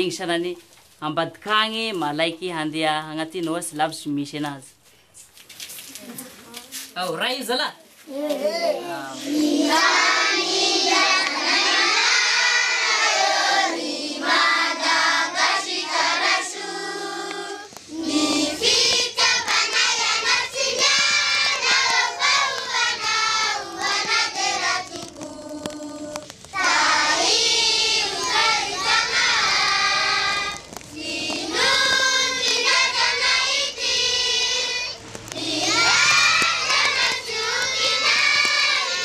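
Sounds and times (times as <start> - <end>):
children singing in chorus: 9.2 - 39.0.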